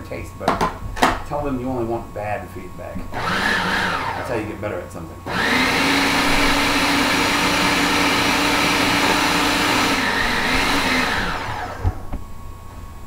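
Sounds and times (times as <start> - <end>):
blender running: 3.1 - 4.5, 5.3 - 12.0.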